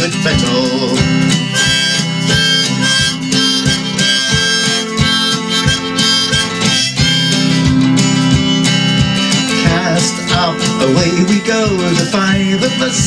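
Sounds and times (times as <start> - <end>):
strummed acoustic guitar: 0.0 - 13.0
wind instrument melody: 1.4 - 8.7.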